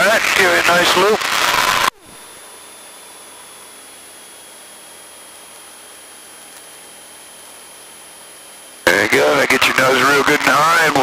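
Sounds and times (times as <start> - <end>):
radio audio hiss: 0.0 - 2.5, 8.8 - 11.0
faint aircraft engine hum: 2.0 - 11.0.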